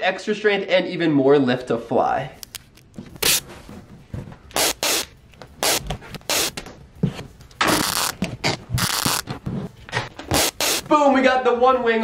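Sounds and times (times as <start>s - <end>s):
duct tape ripping off roll: 2.5s - 3.5s, 4.5s - 6.6s, 7.6s - 9.4s, 10.2s - 10.9s.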